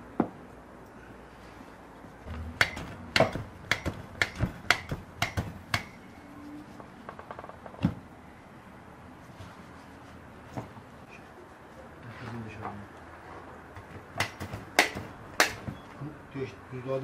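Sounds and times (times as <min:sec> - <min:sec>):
meat pounder striking steak: 0:02.3 - 0:06.0.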